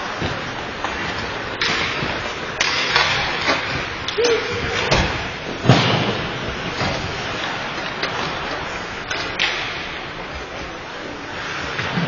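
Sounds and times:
hockey sticks and puck clacking: 0.0s - 12.0s
skate blades scraping ice: 10.4s - 12.0s.

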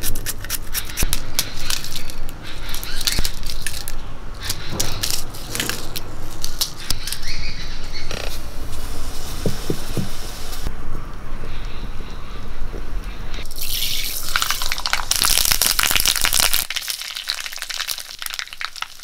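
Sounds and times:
knife crunching dried chillies: 0.0s - 7.3s
steady hiss: 8.4s - 10.7s
soft knocks: 9.4s - 10.2s.

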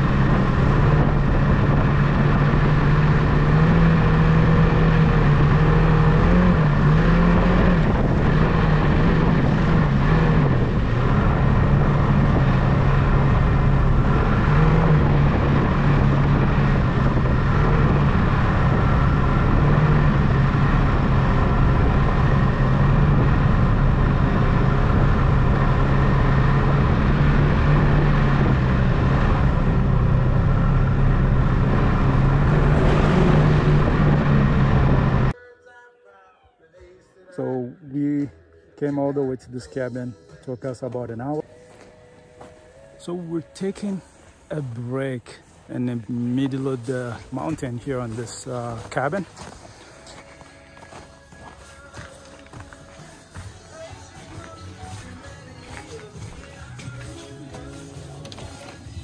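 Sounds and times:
constant rushing noise: 0.0s - 35.4s
snowmobile engine running: 0.0s - 35.4s, 43.1s - 59.0s.

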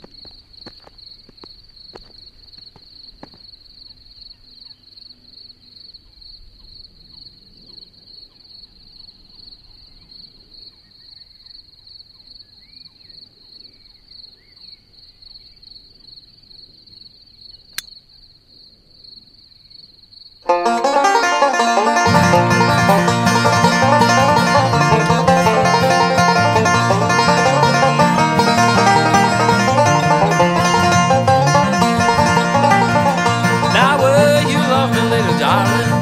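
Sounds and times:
cricket chirping: 0.0s - 20.6s
sharp click: 17.7s - 18.0s.

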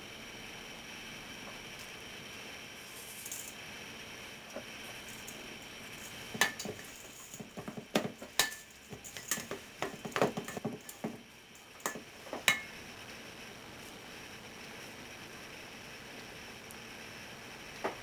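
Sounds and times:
metal mixing bowl clanking: 6.0s - 11.2s.

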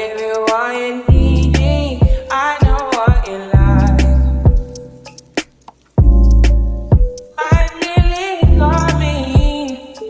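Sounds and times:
song with bass and beat: 0.0s - 10.0s.

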